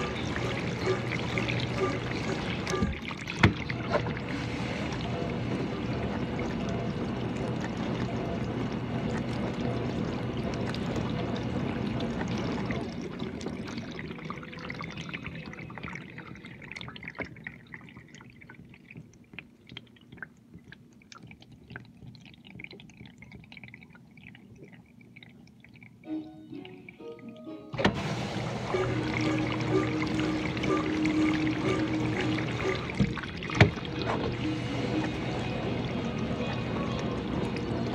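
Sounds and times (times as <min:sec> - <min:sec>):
dishwasher pump and spraying water: 0:00.0 - 0:13.3, 0:27.7 - 0:37.9
water dripping and trickling: 0:00.0 - 0:27.5, 0:28.4 - 0:37.9.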